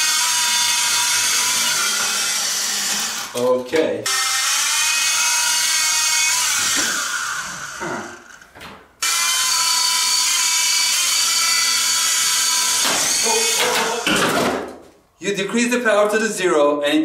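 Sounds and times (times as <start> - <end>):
toy helicopter rotors whining: 0.0 - 3.4.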